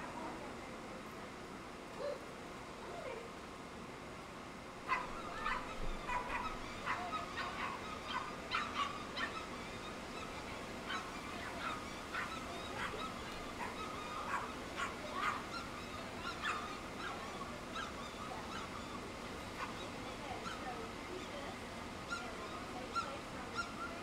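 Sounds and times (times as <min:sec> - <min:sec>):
dogs barking and yelping: 0:04.8 - 0:20.7, 0:22.1 - 0:24.0.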